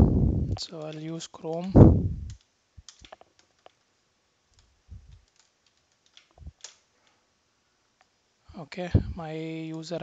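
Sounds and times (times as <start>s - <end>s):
soft low thumps: 0.0s - 0.7s, 1.8s - 2.4s, 4.9s - 5.2s
computer keyboard keystrokes: 0.5s - 3.8s, 4.5s - 6.8s.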